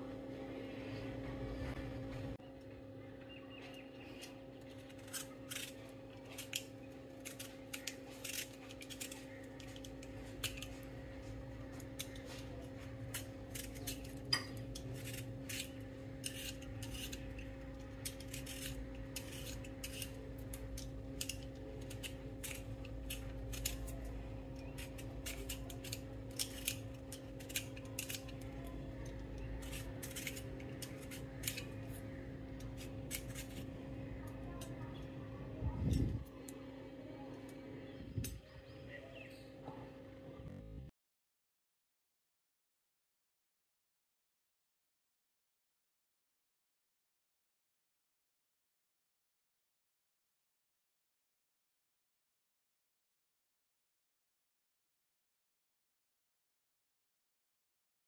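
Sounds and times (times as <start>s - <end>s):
vegetable peeler scraping potato: 3.8s - 34.8s.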